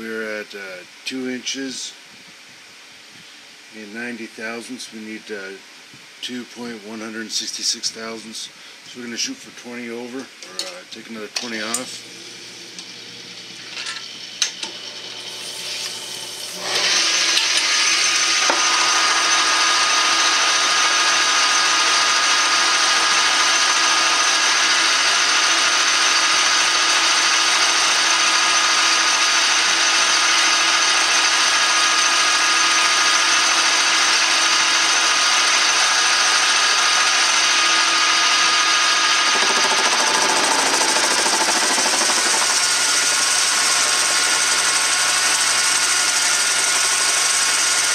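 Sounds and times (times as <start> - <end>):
metal lathe cutting whine: 11.4 - 47.9.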